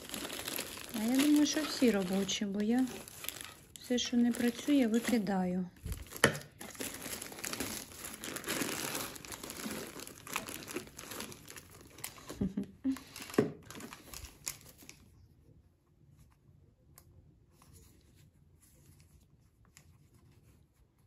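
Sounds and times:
string lights crinkling and rustling: 0.0s - 15.2s.

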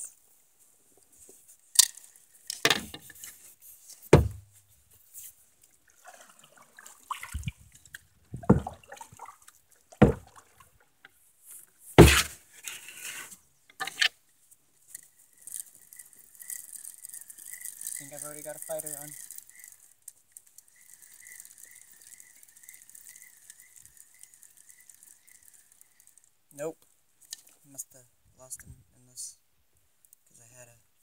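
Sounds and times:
water splashing: 5.8s - 7.8s, 8.4s - 10.8s
fishing gear knocking in a canoe: 8.3s - 8.8s, 10.0s - 10.4s.

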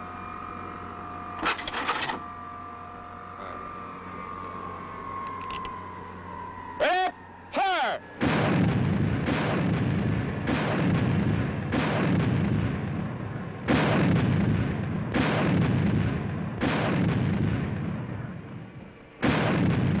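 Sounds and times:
anti-aircraft gun firing: 1.4s - 2.2s, 8.2s - 18.4s, 19.2s - 20.0s.

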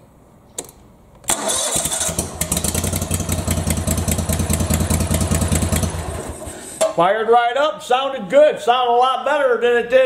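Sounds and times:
engine running with ticking clatter: 1.3s - 6.5s.

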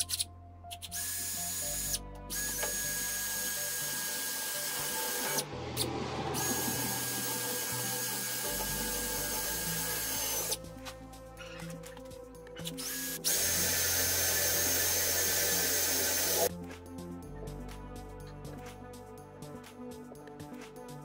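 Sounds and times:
cordless drill whining: 0.9s - 5.4s, 6.4s - 10.6s, 12.6s - 16.5s.

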